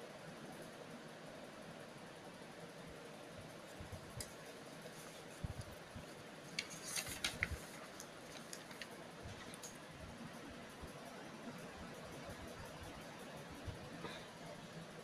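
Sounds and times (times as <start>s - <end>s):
steady low hiss: 0.0s - 15.0s
paper pages rustling: 4.2s - 9.8s.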